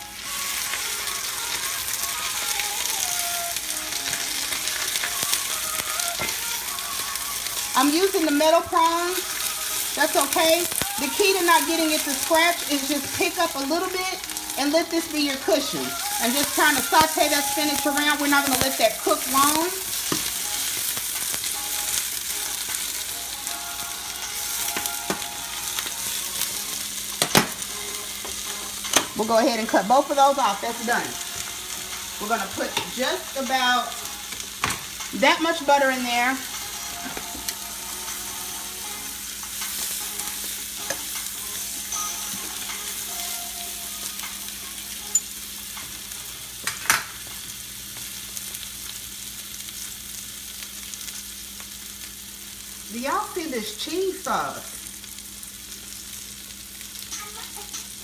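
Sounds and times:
spinach sizzling in a pan: 0.0 - 58.0.

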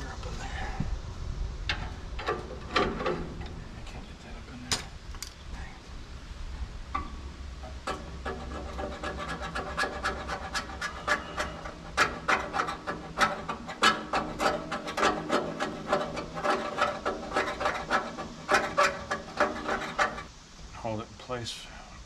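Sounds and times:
filing on painted steel: 7.8 - 20.3.

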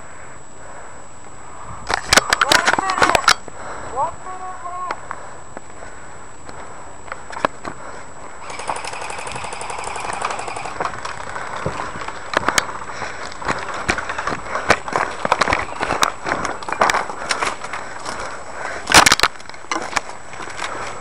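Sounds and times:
airsoft gun full-auto burst: 8.4 - 10.9.

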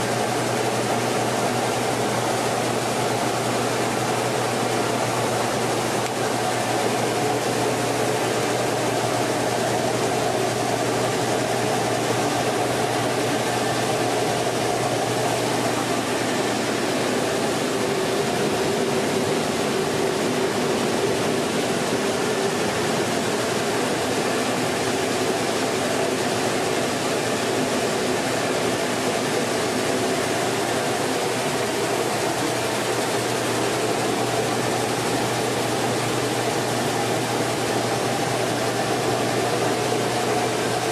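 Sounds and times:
rice mill machinery droning: 0.0 - 40.9.

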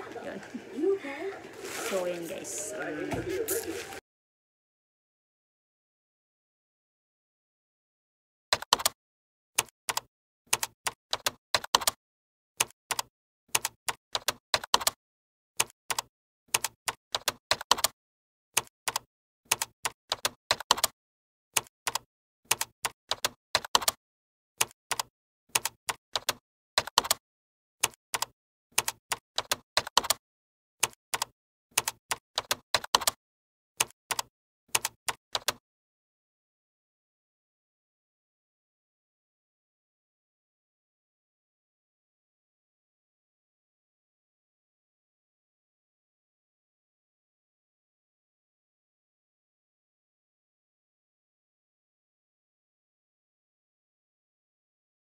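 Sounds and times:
keyboard typing clicks: 8.5 - 9.0, 9.6 - 12.0, 12.6 - 15.0, 15.6 - 17.9, 18.6 - 20.9, 21.6 - 24.0, 24.6 - 27.2, 27.8 - 30.2, 30.8 - 33.2, 33.8 - 35.6.

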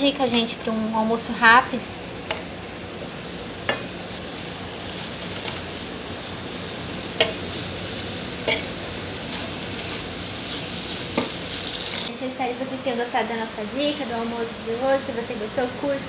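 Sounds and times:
chicken sizzling in a skillet: 0.0 - 12.1
metal fork clicking on pan: 7.2 - 7.4, 8.4 - 8.7.

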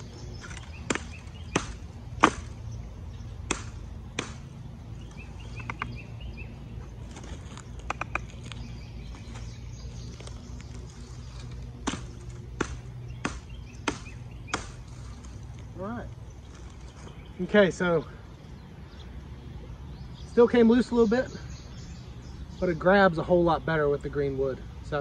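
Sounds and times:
hatchet chopping branches: 0.0 - 2.7, 3.4 - 6.0, 7.1 - 8.6, 10.7 - 15.7.

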